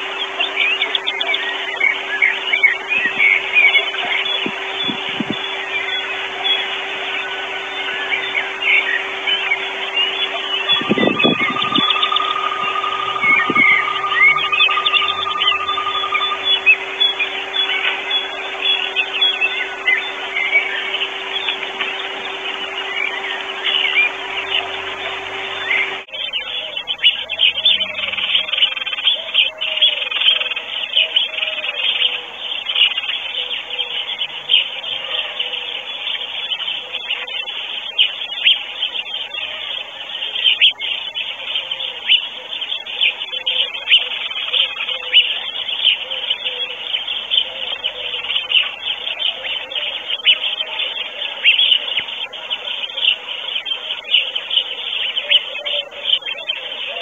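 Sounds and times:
low wavering note: 0:00.0 - 0:26.1
songbirds chirping and singing: 0:00.0 - 0:57.0.

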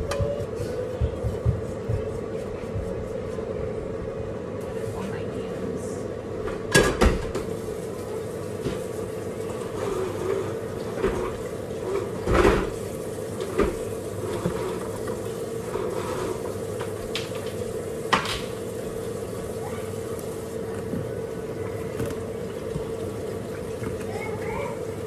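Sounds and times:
water running into sink: 0:07.0 - 0:25.0.

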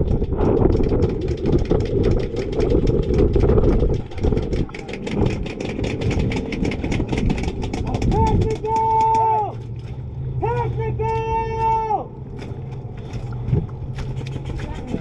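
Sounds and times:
rapid sharp clicks: 0:00.0 - 0:09.9
truck engine running: 0:00.0 - 0:15.0.

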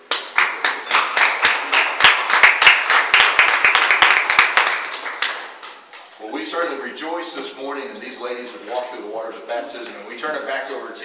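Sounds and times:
sharp claps close to microphone: 0:00.0 - 0:05.8
audience applause: 0:00.1 - 0:05.6.

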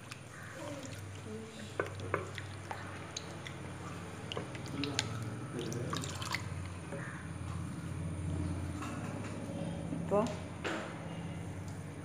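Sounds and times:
water splashing and dripping: 0:00.0 - 0:06.8.

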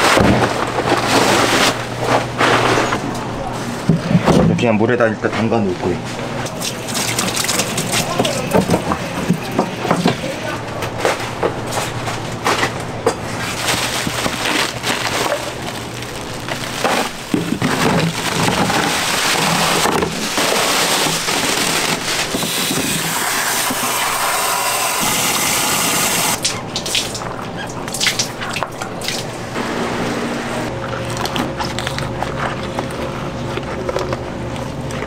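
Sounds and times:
tap water running into basin: 0:06.5 - 0:09.7.

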